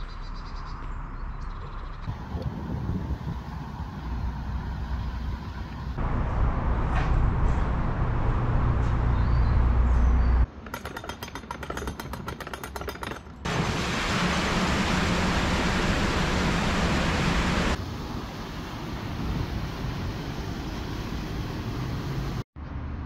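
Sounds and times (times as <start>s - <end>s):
diesel engine running: 13.5s - 22.4s
loud rushing hiss: 13.5s - 22.4s.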